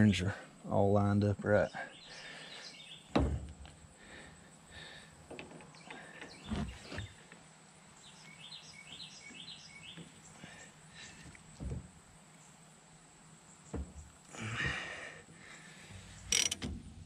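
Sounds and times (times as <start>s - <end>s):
bird chirping: 1.6s - 3.3s, 5.6s - 11.6s
dull knocks and clicks of metal parts: 3.1s - 3.8s, 5.3s - 7.2s, 16.2s - 17.0s.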